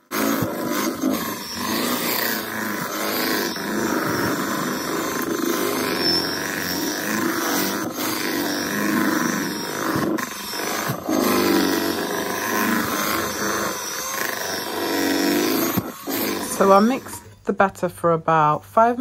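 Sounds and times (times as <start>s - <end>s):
electric hand mixer running: 0.0s - 17.4s.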